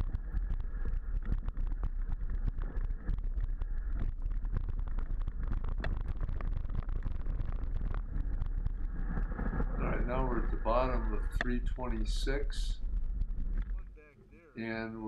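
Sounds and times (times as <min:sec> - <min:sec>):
bike rattling over stones: 0:00.0 - 0:10.3
wind buffeting microphone: 0:00.0 - 0:14.1.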